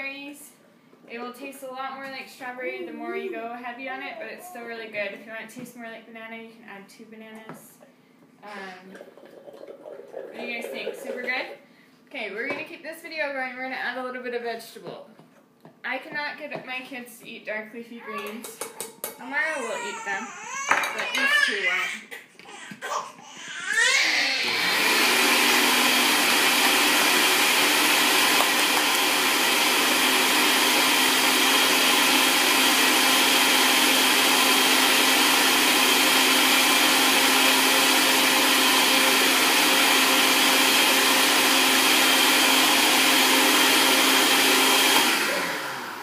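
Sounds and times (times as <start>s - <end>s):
blender running: 10.1s - 11.6s, 23.7s - 46.0s.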